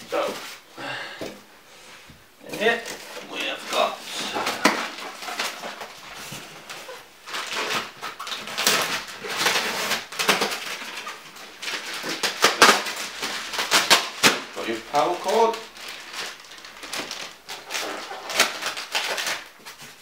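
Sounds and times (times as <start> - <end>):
foam and plastic film rustling: 0.0 - 0.7, 1.8 - 20.0.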